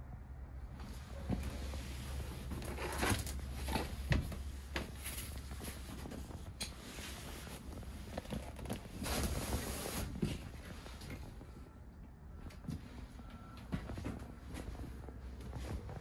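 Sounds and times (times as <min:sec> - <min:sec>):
vinyl cushions rustling: 0:00.8 - 0:11.6, 0:12.7 - 0:16.0.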